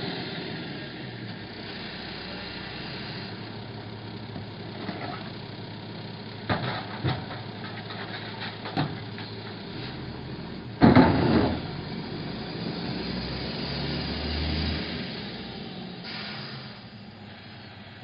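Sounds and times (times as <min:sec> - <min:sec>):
garbage truck engine running: 0:00.0 - 0:18.0
recycling can crashing into truck: 0:10.8 - 0:11.7.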